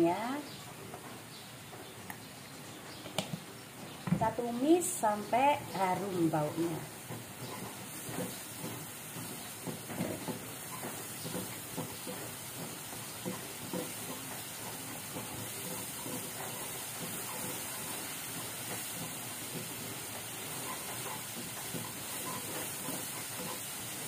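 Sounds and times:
paste sizzling in oil: 5.3 - 24.0
spatula scraping and tapping pan: 7.0 - 24.0.

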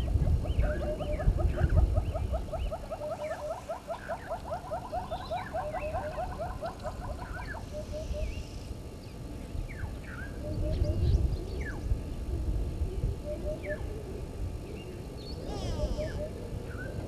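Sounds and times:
animal calling in rising notes: 15.5 - 16.4.

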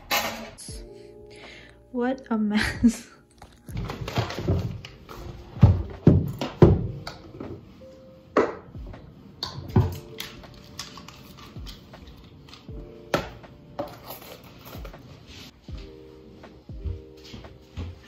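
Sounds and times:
background music: 0.0 - 18.0.

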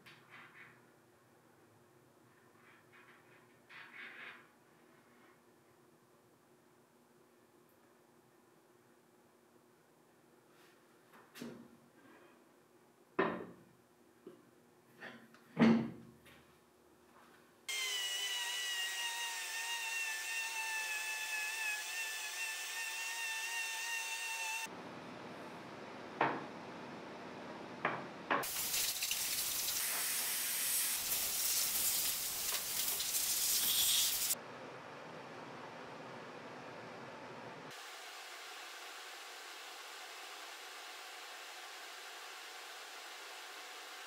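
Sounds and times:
orbital sander on wood: 17.7 - 24.7
loud steady hiss: 28.4 - 34.4.

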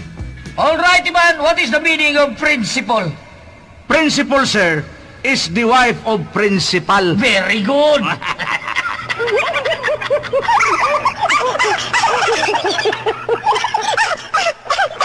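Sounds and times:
canned laughter: 7.8 - 15.0.

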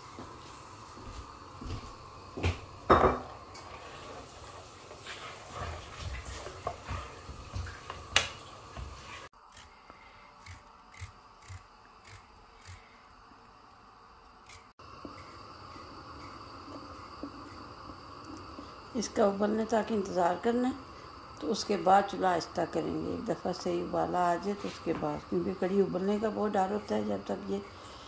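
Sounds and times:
wooden spoon stirring in metal pot: 3.7 - 8.0
steady hum: 8.2 - 28.0.

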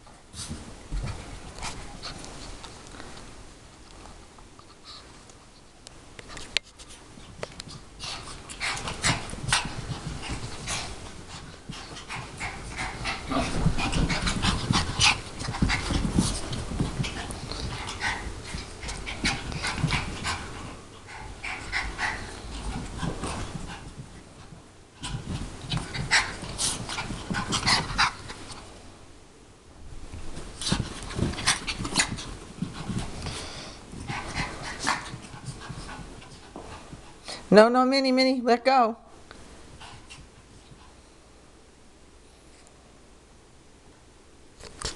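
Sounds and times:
dog panting: 7.6 - 28.4, 30.6 - 37.4.

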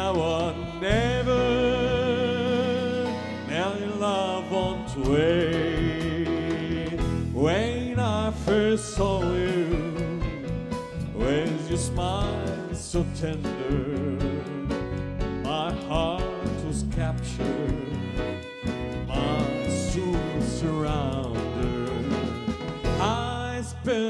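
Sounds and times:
slow song with wavering melody: 0.0 - 24.0.

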